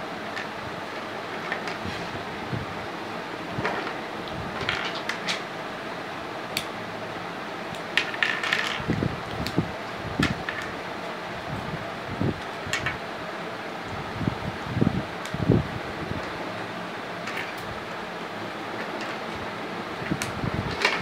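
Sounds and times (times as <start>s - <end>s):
steady background hum: 0.0s - 21.0s
plastic blocks clicking: 8.0s - 8.9s, 20.2s - 21.0s.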